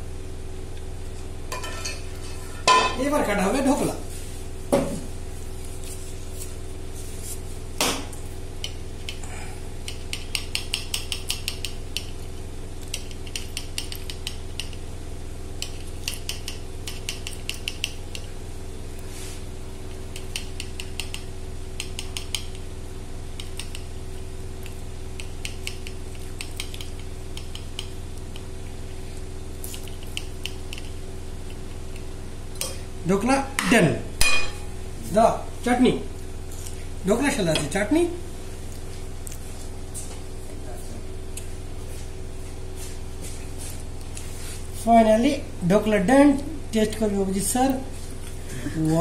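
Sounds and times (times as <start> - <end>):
steady low hum: 0.0 - 49.0
knife clicking and scraping on plate: 9.8 - 12.2, 12.8 - 14.8, 15.6 - 18.3, 29.7 - 30.9.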